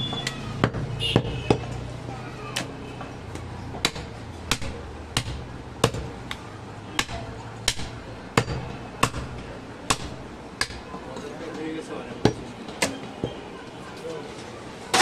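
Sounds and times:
knife chopping on wooden block: 0:03.8 - 0:06.1.

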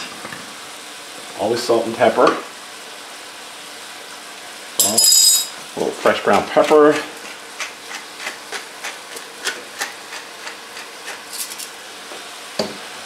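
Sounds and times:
meat sizzling in a frying pan: 0:00.0 - 0:13.0
pepper mill grinding clicks: 0:07.6 - 0:11.7.

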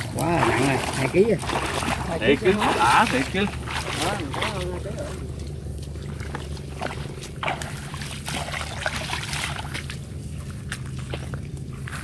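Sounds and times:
steady low hum: 0:00.0 - 0:12.0
water splashing and dripping: 0:00.0 - 0:12.0.

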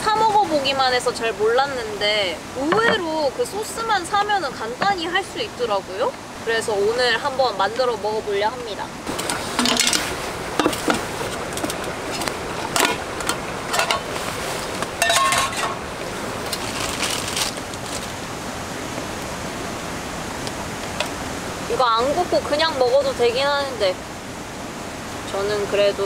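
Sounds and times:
frying pan clinking on metal grate: 0:09.6 - 0:11.0, 0:12.7 - 0:14.1, 0:15.0 - 0:15.8.

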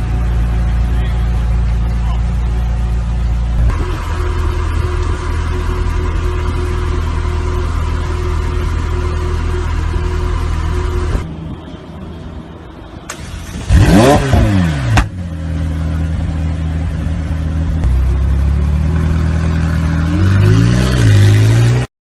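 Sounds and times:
car engine revving: 0:13.1 - 0:21.9.

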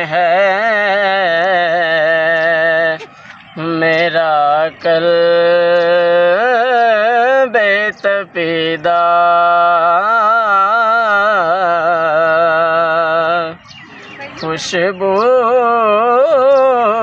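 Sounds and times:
man singing unaccompanied: 0:00.0 - 0:13.7, 0:14.3 - 0:17.0.

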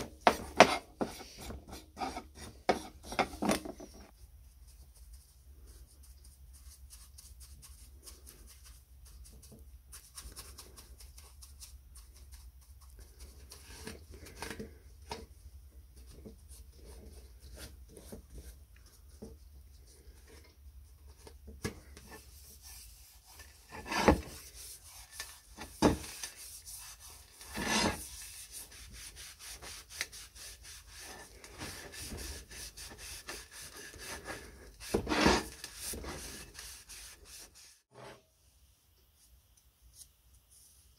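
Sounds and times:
scrapes and knocks: 0:00.0 - 0:04.2, 0:16.0 - 0:28.3, 0:31.0 - 0:38.3.

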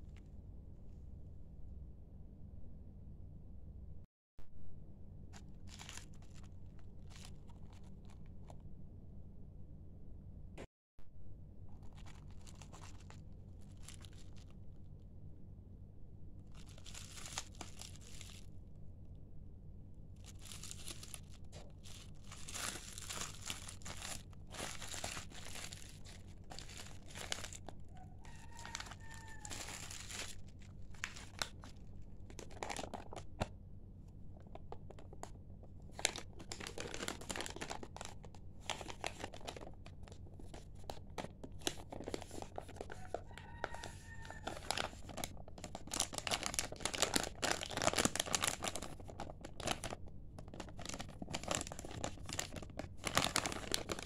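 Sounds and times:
bubble wrap and plastic bag crinkling: 0:05.4 - 0:08.6, 0:11.7 - 0:14.6, 0:16.4 - 0:18.6, 0:20.2 - 0:33.5, 0:34.4 - 0:54.0.

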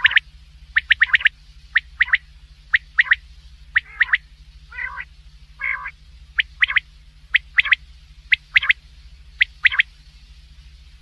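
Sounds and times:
low rough quail calls: 0:00.0 - 0:08.8, 0:09.4 - 0:09.9
quail three-note call: 0:03.8 - 0:06.8.

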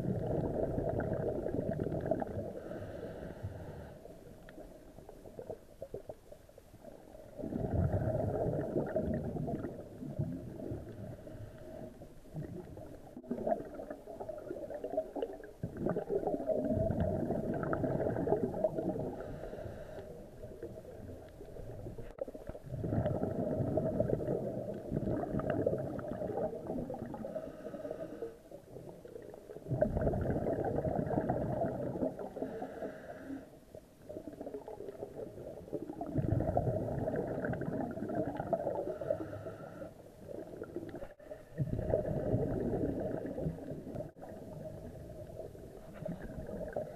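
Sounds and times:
underwater bubbles gurgling: 0:00.0 - 0:46.9
diver breathing underwater: 0:00.1 - 0:04.2, 0:10.7 - 0:12.1, 0:17.2 - 0:20.5, 0:26.9 - 0:28.6, 0:30.0 - 0:33.6, 0:36.1 - 0:40.1.

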